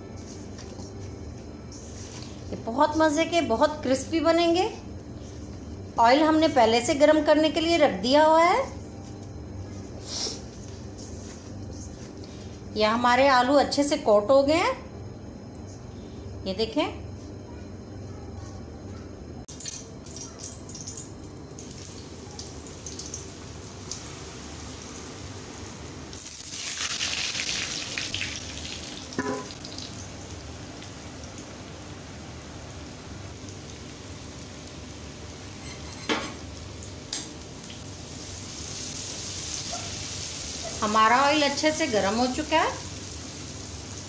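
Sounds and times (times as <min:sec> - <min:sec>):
fries sizzling in hot oil: 0:19.5 - 0:44.0.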